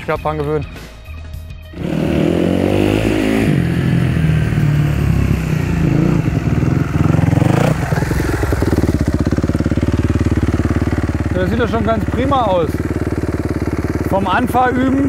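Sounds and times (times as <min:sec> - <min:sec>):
motocross bike engine revving: 0:01.8 - 0:15.0.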